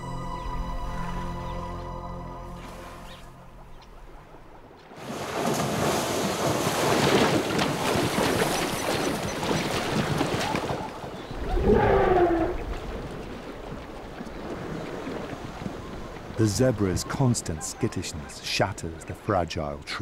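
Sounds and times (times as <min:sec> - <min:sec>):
animals galloping through water: 0:04.4 - 0:20.0.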